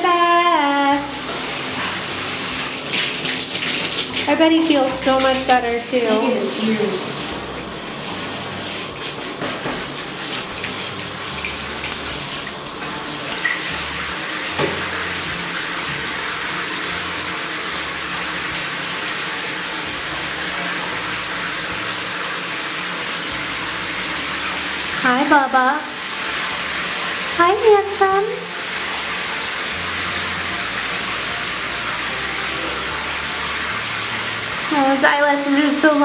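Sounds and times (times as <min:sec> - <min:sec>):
shower head spraying water: 0:00.0 - 0:36.0.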